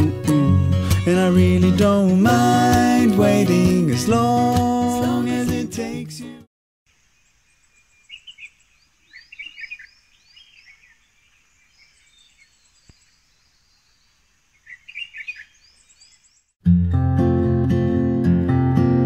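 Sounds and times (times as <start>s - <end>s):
birds chirping: 6.9s - 16.6s.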